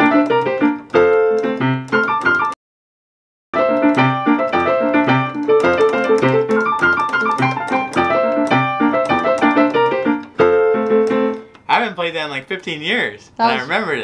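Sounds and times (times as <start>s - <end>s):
piano melody over chords: 0.0s - 2.6s, 3.6s - 11.8s.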